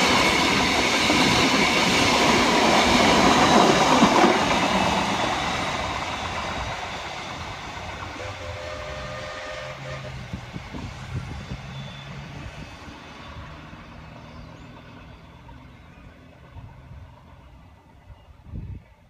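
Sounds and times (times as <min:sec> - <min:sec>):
steam train rumble: 0:00.0 - 0:19.0
brief steady tone: 0:11.6 - 0:13.6.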